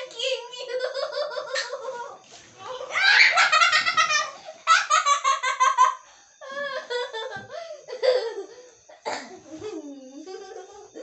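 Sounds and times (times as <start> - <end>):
boy laughing: 2.9 - 8.6.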